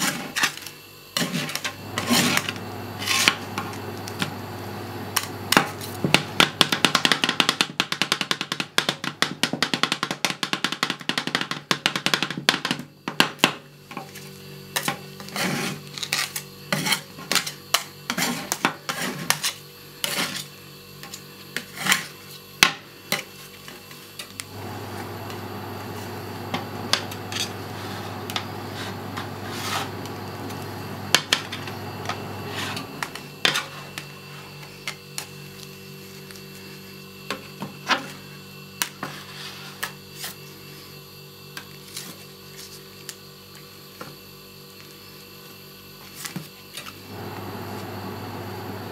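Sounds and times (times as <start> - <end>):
spatulas scraping: 0.0 - 4.4, 14.8 - 22.3, 23.1 - 35.3, 38.9 - 40.5
steady low hum: 24.4 - 34.9.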